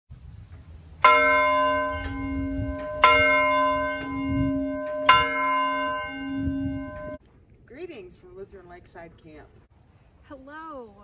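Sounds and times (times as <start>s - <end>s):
large bell ringing: 1.0s - 7.2s.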